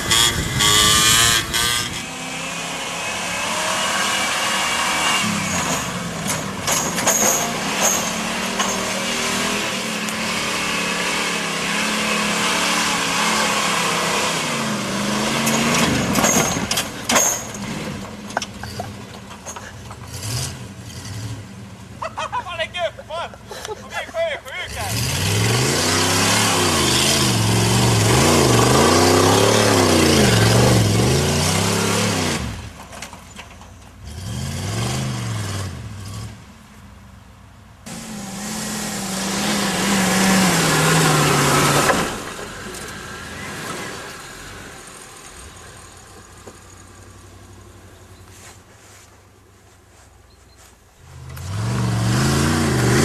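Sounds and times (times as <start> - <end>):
pickup truck engine revving: 0.0 - 19.0, 20.0 - 22.3, 24.6 - 32.7, 34.0 - 36.4, 37.8 - 45.6, 51.1 - 53.0.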